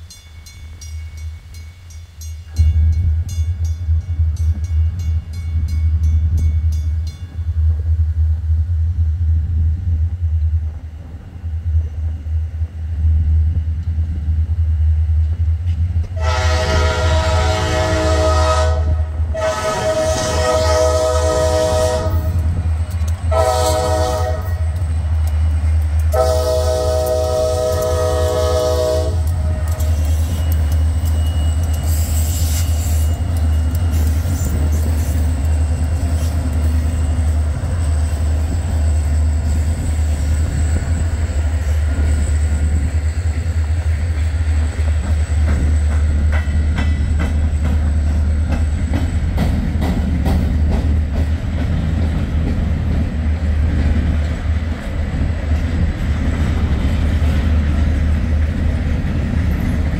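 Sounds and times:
freight train rumbling: 0.0s - 59.9s
train horn: 16.1s - 22.5s, 23.3s - 24.8s, 26.1s - 30.1s
wheels clicking over rail joints: 22.3s - 28.4s, 29.0s - 37.8s.

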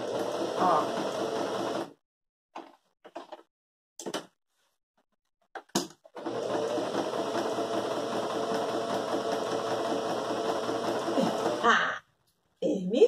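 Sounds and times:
sewing machine stitching: 0.0s - 2.0s, 6.1s - 11.6s.

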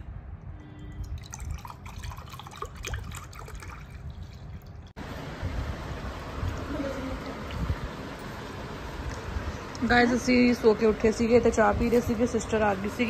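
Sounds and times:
liquid pouring into cups: 1.0s - 4.9s.

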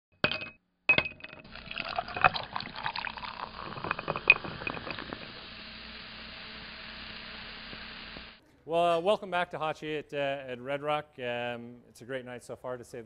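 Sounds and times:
glass clinks and cracks: 0.2s - 5.1s
liquid pouring into glass: 1.4s - 6.8s.

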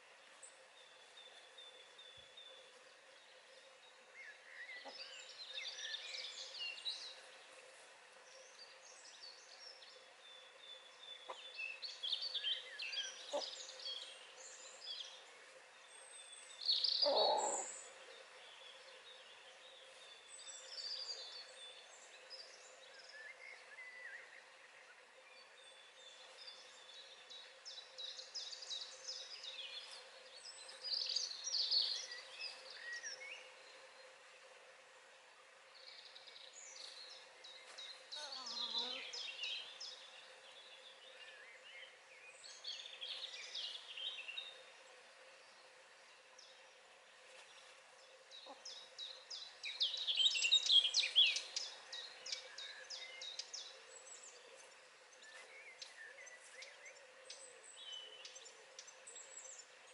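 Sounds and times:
songbirds chirping and warbling: 0.0s - 59.9s
lower-pitched bird call: 17.0s - 17.7s.

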